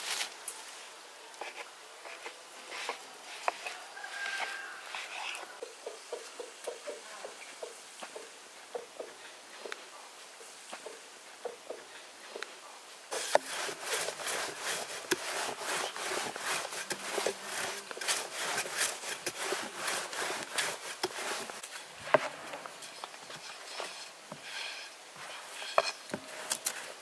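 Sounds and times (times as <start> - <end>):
rolling pin rolling dough: 13.1 - 27.0.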